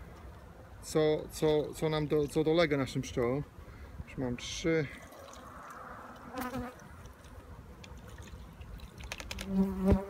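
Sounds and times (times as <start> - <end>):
honeybees buzzing: 9.4 - 10.0.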